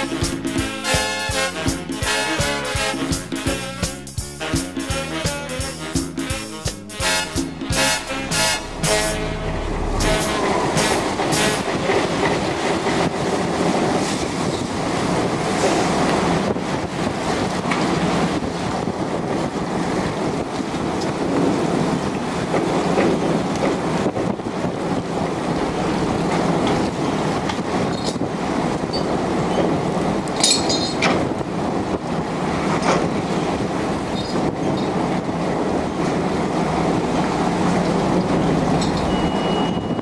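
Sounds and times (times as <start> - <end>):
boat engine and machinery rumbling: 0.0 - 40.0
high metallic squeal: 7.8 - 12.8.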